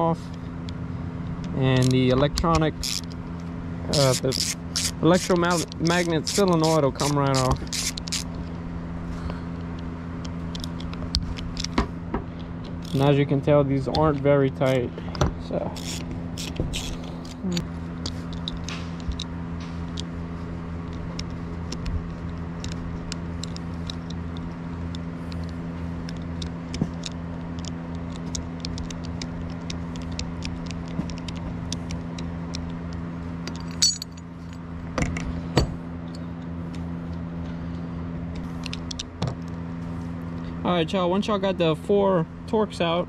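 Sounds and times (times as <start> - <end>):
steady low hum: 0.0 - 43.0
small metal parts clicking: 1.7 - 8.5, 15.8 - 19.3, 33.4 - 35.3.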